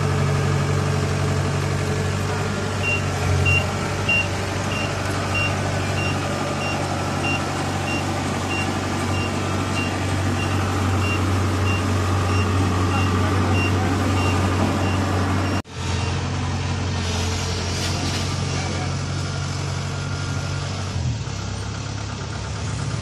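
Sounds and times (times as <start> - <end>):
diesel engine running: 0.0 - 23.0
high warning beeps: 2.8 - 16.1.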